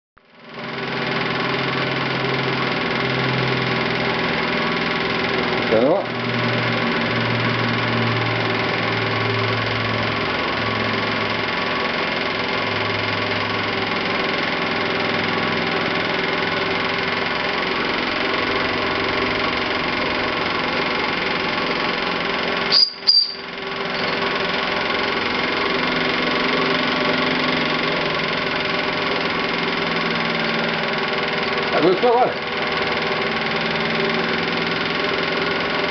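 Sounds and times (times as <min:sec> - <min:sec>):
steam engine mechanical whirr: 0:03.8 - 0:35.9
sharp click: 0:22.7 - 0:23.4.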